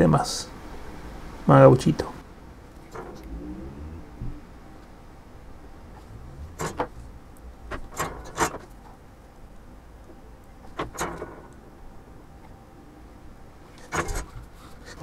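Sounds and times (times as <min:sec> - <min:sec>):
faint low rumble: 0:02.2 - 0:10.6.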